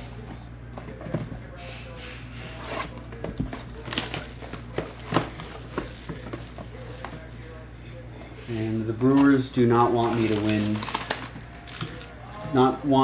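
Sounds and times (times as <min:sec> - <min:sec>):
plastic wrap crinkling: 0:03.5 - 0:07.4, 0:08.9 - 0:13.0
blade slitting plastic wrap: 0:09.1 - 0:12.1.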